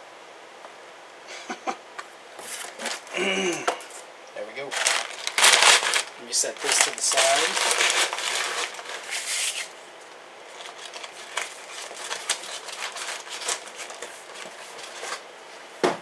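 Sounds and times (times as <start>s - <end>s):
packing material crinkling: 2.4s - 3.1s, 4.6s - 15.3s.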